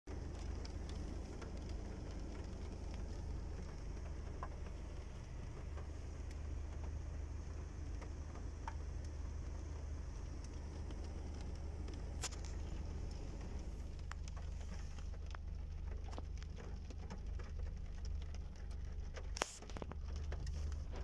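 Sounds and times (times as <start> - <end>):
rain tapping on car roof: 0.1 - 21.0
steady low hum: 0.1 - 21.0.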